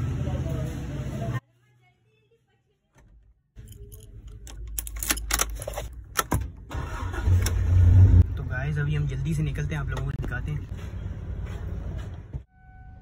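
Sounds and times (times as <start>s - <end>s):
car keys jingling and clicking: 3.6s - 7.1s
car engine starting: 4.8s - 12.0s.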